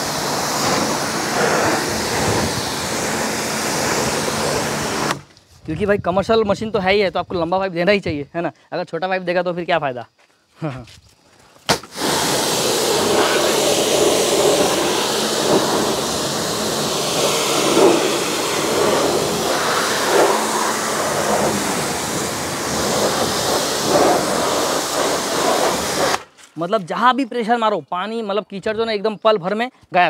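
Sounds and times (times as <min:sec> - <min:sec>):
pressure washer jet hissing: 0:00.0 - 0:05.3, 0:11.7 - 0:26.3.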